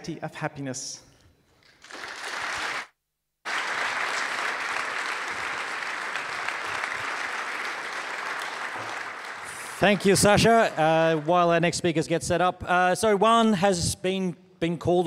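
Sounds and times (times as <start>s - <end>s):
audience applauding: 1.8s - 11.8s.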